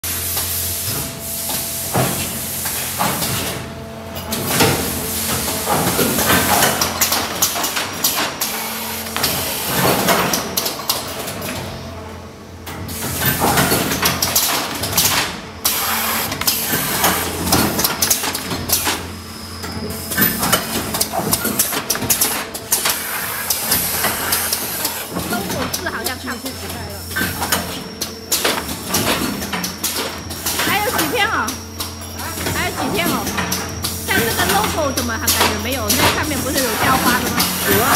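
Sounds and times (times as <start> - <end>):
machine humming: 13.6 - 37.9
machine hissing: 15.6 - 18.1, 19.4 - 29.4, 30.2 - 37.9.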